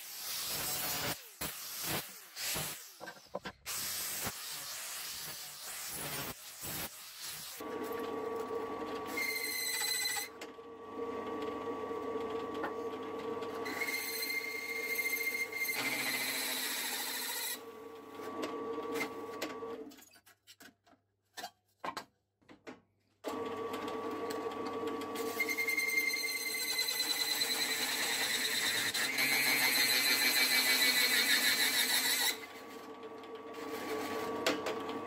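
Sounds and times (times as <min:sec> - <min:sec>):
hole saw squealing on metal: 0:09.2 - 0:10.3, 0:13.7 - 0:17.6, 0:25.3 - 0:32.4.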